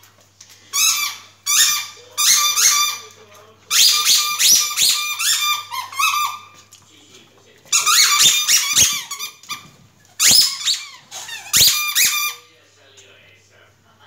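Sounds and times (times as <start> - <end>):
squeaky toy squeaking: 0.7 - 3.1, 3.7 - 6.5, 7.7 - 12.5.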